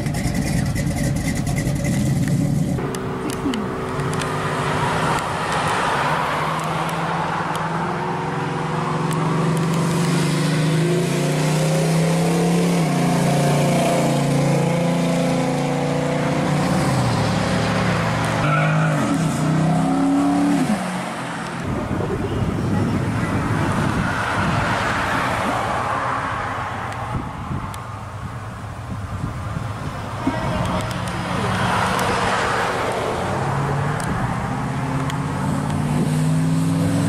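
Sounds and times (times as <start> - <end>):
car engine accelerating past: 31.3 - 37.0.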